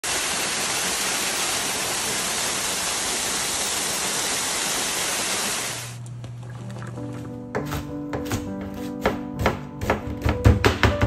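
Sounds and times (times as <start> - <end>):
waterfall pouring into pool: 0.0 - 6.0.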